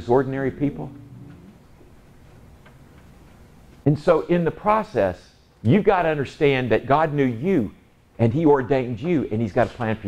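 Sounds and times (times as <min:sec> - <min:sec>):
man's voice: 0:00.0 - 0:01.6
faint low hum: 0:00.0 - 0:10.0.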